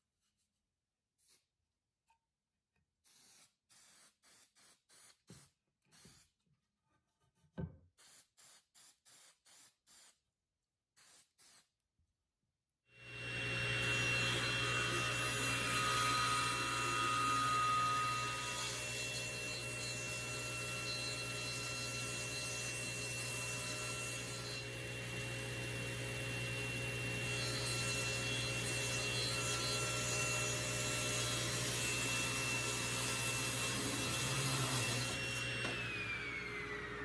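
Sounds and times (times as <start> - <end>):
table saw cutting wood: 13.0 - 37.0
saw blade spinning down: 33.5 - 37.0.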